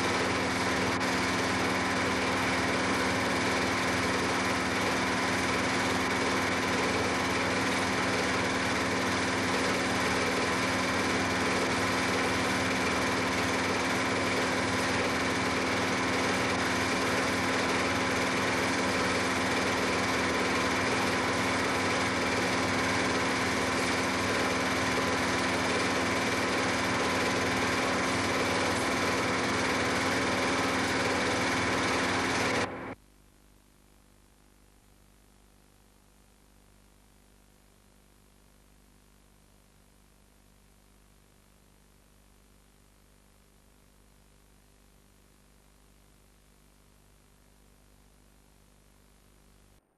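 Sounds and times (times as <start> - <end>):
small motor humming: 0.0 - 33.0.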